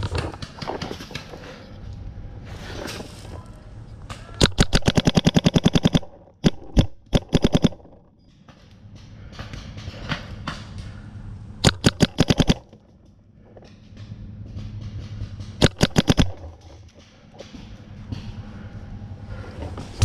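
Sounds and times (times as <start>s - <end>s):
paintball marker rapid firing: 0.0s - 1.4s, 4.4s - 8.0s, 11.6s - 12.7s, 15.5s - 16.7s.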